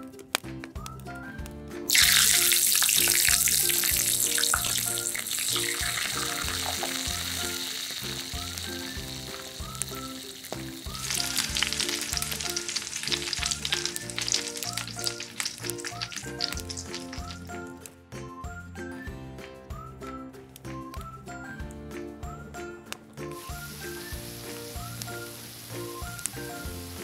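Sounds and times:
deep-frying sizzle: 1.8 - 17.8, 23.2 - 27.0
oil crackling and popping: 1.9 - 18.0, 23.3 - 27.0.

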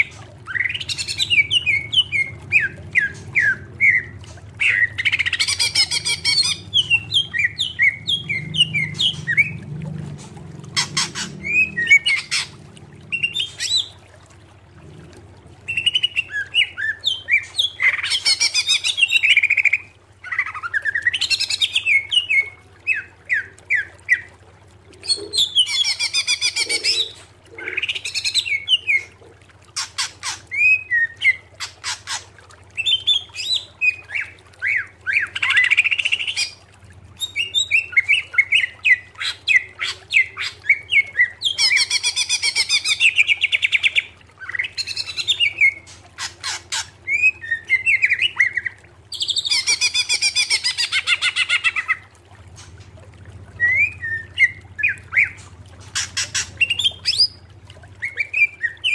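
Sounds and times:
bird whistling and trilling: 0.4 - 9.6, 37.2 - 52.0, 53.6 - 55.4, 56.0 - 57.4, 58.0 - 58.9.

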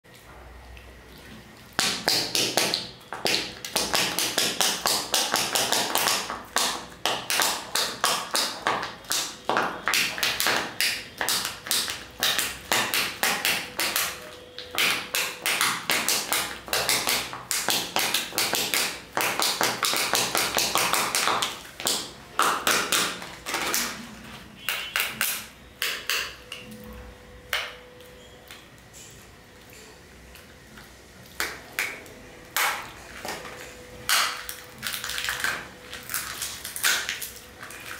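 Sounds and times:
foil wrapper crinkling: 34.2 - 37.9.

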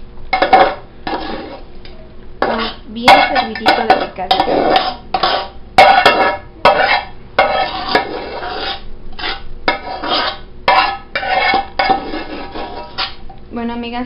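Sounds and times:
spoon scraping metal dishes: 0.4 - 1.7, 2.4 - 13.3.

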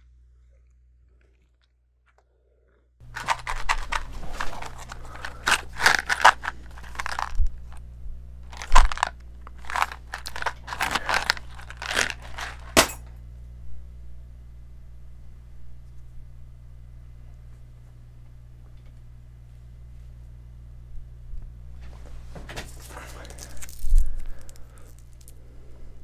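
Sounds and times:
matchbox rubbing and crinkling: 3.0 - 7.8, 8.4 - 12.8.

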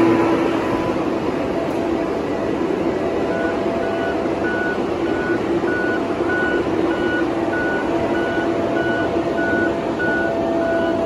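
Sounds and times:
diesel engine running: 0.0 - 11.0
back-up alarm beeping: 3.1 - 11.0.

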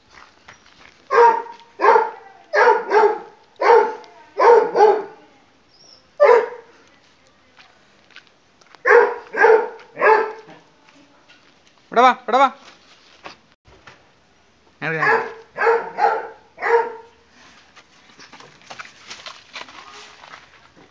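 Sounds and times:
puppy barking: 1.1 - 5.2, 6.2 - 6.7, 8.8 - 10.6, 14.9 - 17.2.

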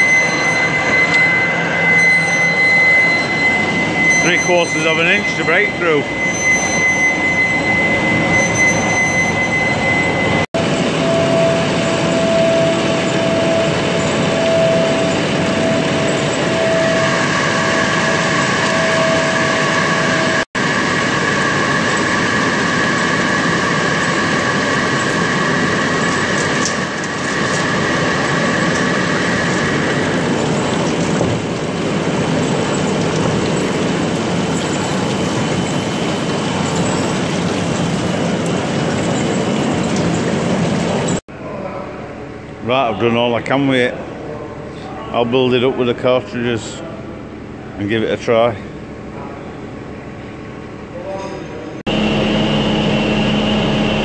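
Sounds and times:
high whine from cutting: 0.0 - 41.2, 51.9 - 54.0
lathe machining metal: 0.0 - 41.2.

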